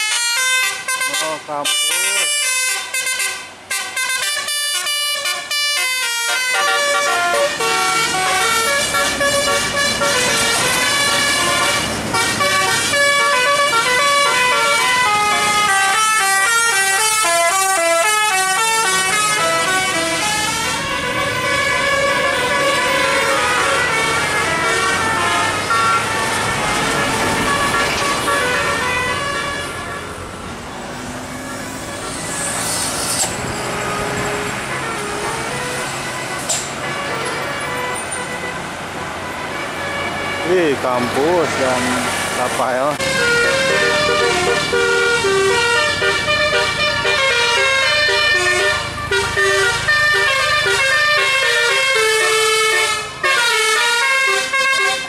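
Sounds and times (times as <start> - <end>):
musical bus air horn: 0.0 - 30.2, 31.3 - 40.6, 43.0 - 55.0
diesel bus engine running: 6.1 - 40.4.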